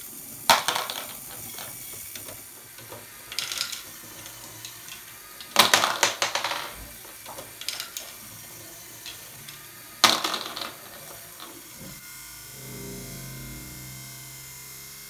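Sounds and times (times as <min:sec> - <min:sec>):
plastic balls clattering into bowl: 0:00.3 - 0:12.0.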